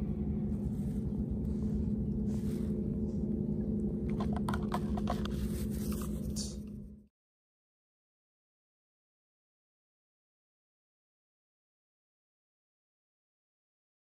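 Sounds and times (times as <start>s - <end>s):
low rumble: 0.0s - 7.1s
steady low hum: 0.0s - 7.1s.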